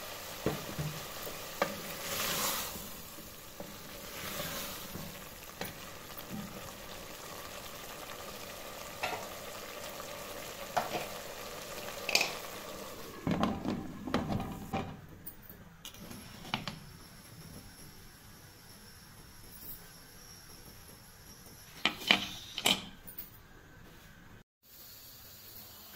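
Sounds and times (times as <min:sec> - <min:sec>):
vegetables sizzling in a pot: 0:00.0 - 0:14.8.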